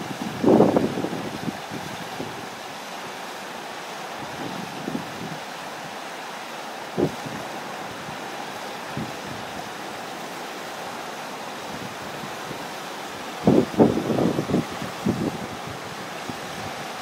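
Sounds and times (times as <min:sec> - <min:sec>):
floodwater rushing over a wall: 0:00.0 - 0:17.0
wind buffeting microphone: 0:13.4 - 0:17.0.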